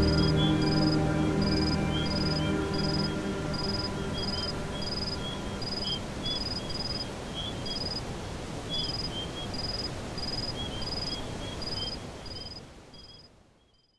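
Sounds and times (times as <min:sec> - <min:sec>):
music chord: 0:00.0 - 0:06.9
high chirp: 0:00.0 - 0:07.0
softer lower chirps: 0:00.0 - 0:07.9.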